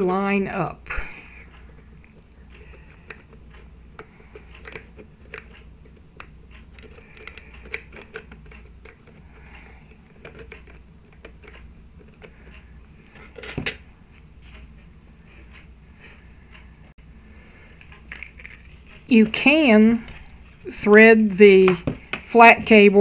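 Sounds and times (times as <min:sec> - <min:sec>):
plastic connector clicks and scrapes: 0:04.0 - 0:09.2, 0:09.9 - 0:12.6.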